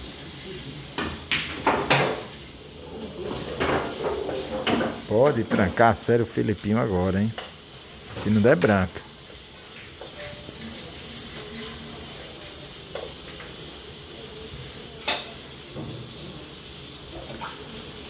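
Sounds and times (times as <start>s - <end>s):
steady hissing noise: 0.0s - 18.0s.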